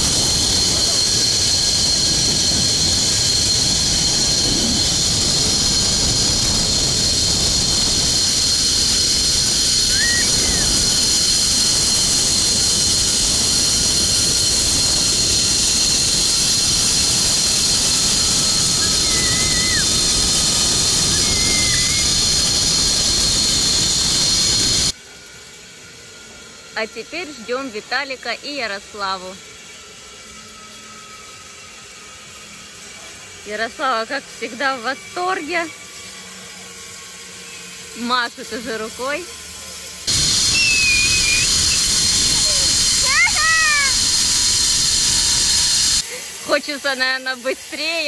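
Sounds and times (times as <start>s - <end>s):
wind rush on microphone: 0.0s - 24.9s, 40.1s - 46.0s
pulleys whining along steel cable: 0.0s - 48.0s.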